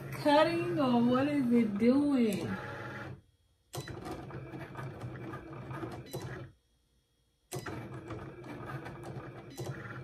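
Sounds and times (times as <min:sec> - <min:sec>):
cutting machine motors humming: 0:00.0 - 0:03.2.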